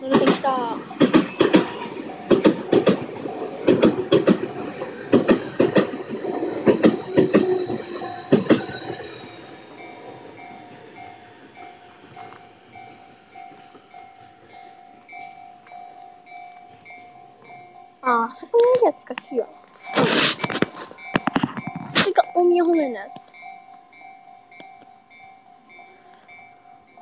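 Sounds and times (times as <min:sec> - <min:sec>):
train wheels clacking over rail joints: 0:00.0 - 0:15.8
electric train whine: 0:00.0 - 0:27.0
level crossing bell dinging: 0:22.1 - 0:27.0.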